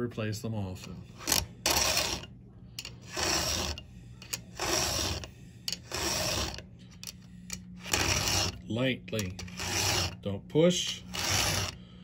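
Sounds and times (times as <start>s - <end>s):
file rasping on saw chain: 1.2s - 6.6s, 7.8s - 11.8s.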